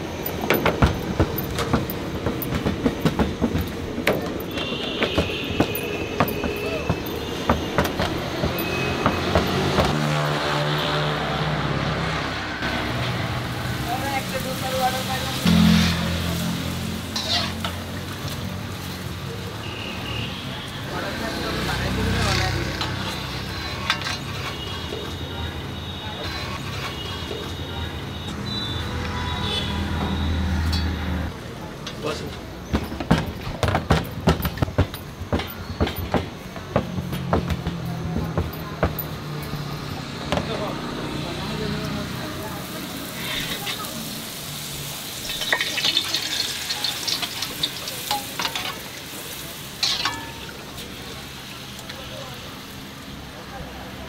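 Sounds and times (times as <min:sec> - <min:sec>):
oil sizzling in a pan: 0:13.3 - 0:19.6, 0:42.4 - 0:53.1.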